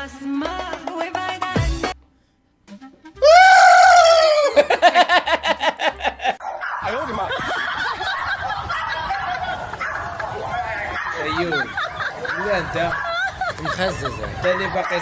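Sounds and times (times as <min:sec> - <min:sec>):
loud laughter: 0:03.2 - 0:06.4.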